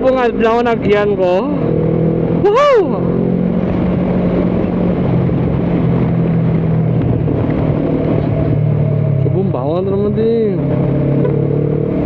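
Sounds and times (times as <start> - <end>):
wind rush: 0.0 - 12.0.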